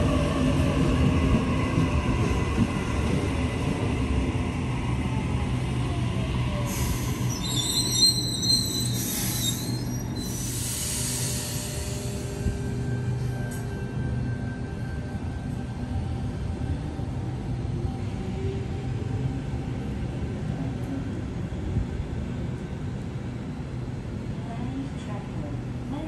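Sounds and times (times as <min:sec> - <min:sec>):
train rumbling: 0:00.0 - 0:26.0
wheel squeal on rails: 0:06.9 - 0:12.3.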